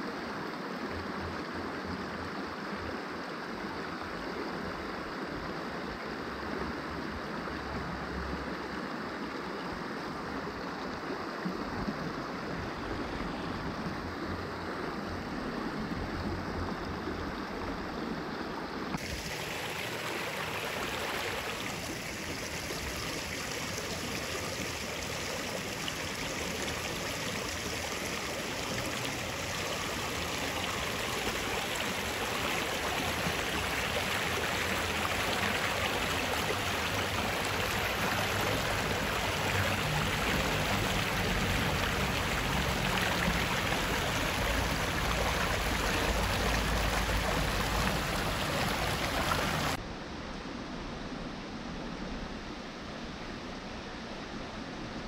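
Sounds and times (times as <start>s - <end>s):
creek water rushing: 0.0s - 49.8s.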